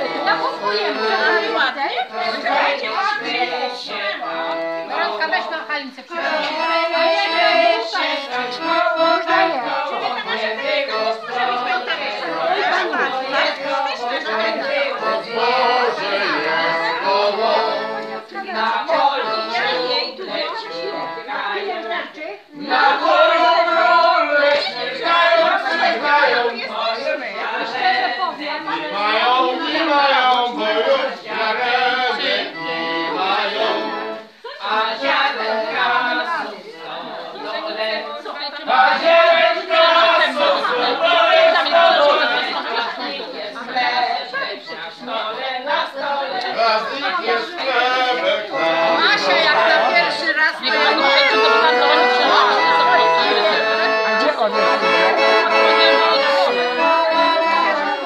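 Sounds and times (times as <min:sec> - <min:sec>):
accordion playing folk tune: 0:00.0 - 0:58.0
people's voices: 0:00.0 - 0:58.0
person singing held gliding notes: 0:47.6 - 0:58.0.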